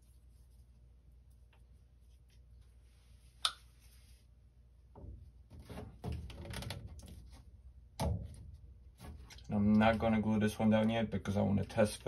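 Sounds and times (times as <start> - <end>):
plastic pipe knocks and scrapes: 5.0 - 10.1.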